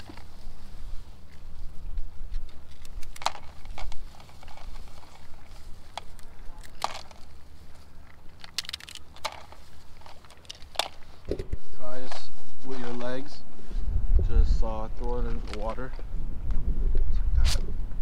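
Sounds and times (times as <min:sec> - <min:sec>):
shears crunching through shells: 0:02.5 - 0:11.3.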